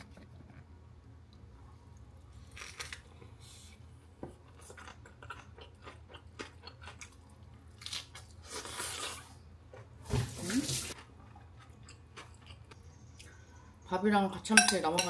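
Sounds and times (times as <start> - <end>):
kitchen things clicking and tapping: 14.5 - 15.0.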